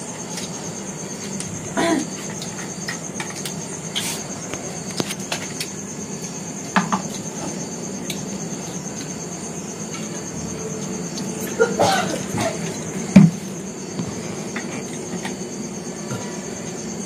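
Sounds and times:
cricket chirring: 0.0s - 17.0s.

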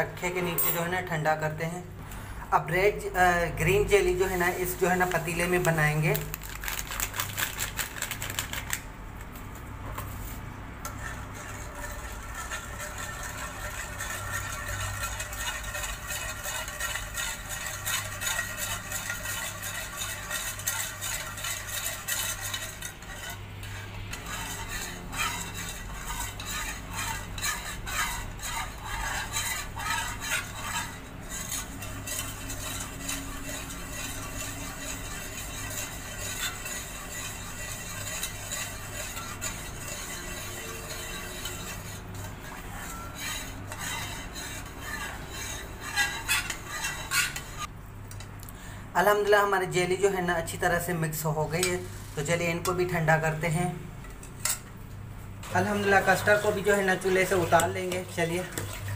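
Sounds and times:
steady low hum: 8.8s - 49.0s.

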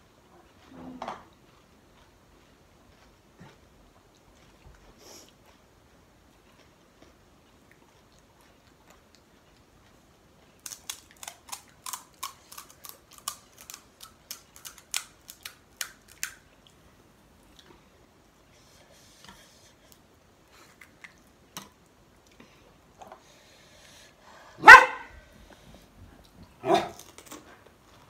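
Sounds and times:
crisp shells cracking: 10.6s - 16.4s.

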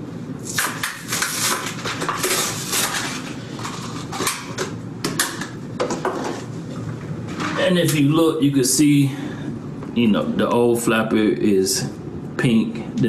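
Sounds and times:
stiff plastic crackling and snapping: 0.4s - 3.3s.

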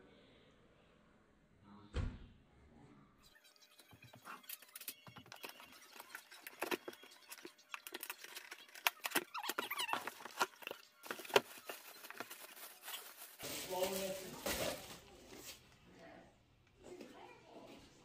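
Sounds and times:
cardboard packing rustling: 4.0s - 15.7s.

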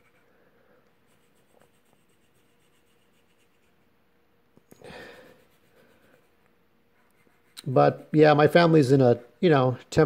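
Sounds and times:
pencil scratching on paper: 0.0s - 0.4s, 1.0s - 3.9s, 5.1s - 9.7s.

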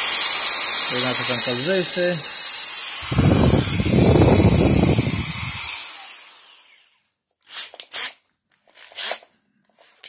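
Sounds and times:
drill motor spinning down: 0.0s - 7.0s
faint handling sounds: 8.5s - 10.0s.

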